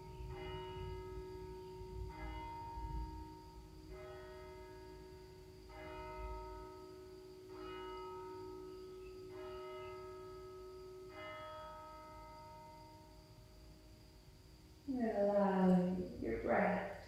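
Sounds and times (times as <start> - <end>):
church bell striking: 0.0 - 13.2.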